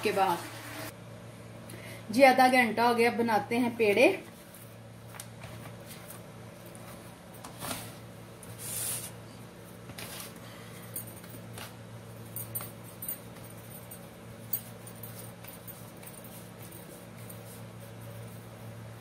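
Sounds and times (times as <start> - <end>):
steady low hum: 0.0 - 19.0
hands shaping dough: 14.4 - 19.0.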